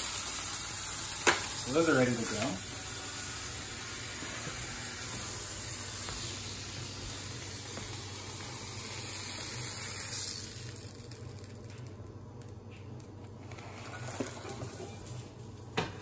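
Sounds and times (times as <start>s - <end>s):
bacon sizzling in a frying pan: 0.0s - 12.1s.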